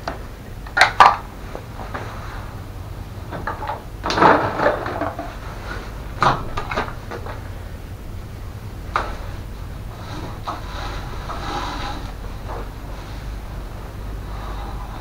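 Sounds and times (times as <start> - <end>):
steady low hum: 0.0 - 15.0
hard parts clattering: 3.2 - 14.0.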